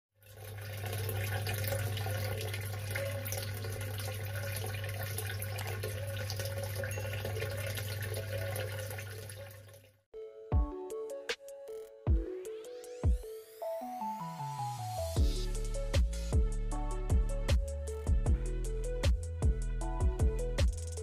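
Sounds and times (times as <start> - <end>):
water pouring into water: 0.2 - 10.0.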